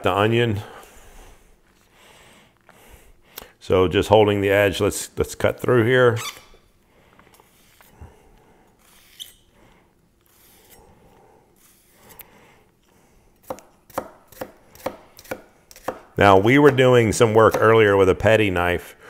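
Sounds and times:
knife chopping on wooden board: 0:13.4 - 0:16.9, 0:17.5 - 0:17.8
knife slicing onion: 0:13.4 - 0:18.0.

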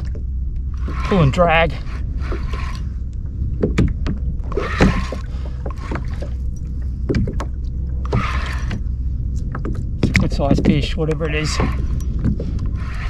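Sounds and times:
rushes of water: 0:00.0 - 0:13.0
waves lapping against kayak hull: 0:00.0 - 0:13.0
wind on microphone: 0:00.0 - 0:13.0
sharp knocks: 0:03.6 - 0:04.2.

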